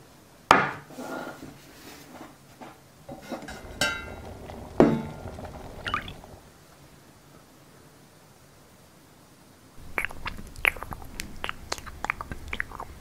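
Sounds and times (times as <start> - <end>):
metal cookware knocking and clinking: 3.1 - 6.4
ringing metal clank: 3.1 - 6.4.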